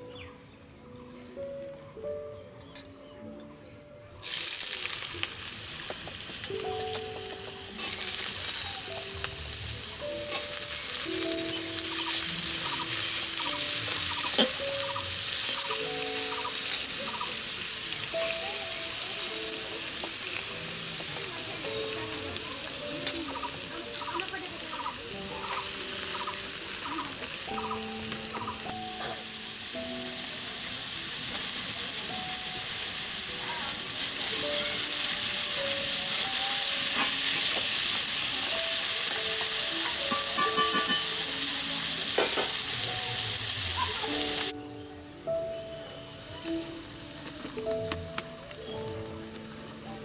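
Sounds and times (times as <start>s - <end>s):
potato deep-frying in oil: 4.2s - 44.6s
metal spatula stirring: 39.8s - 41.2s.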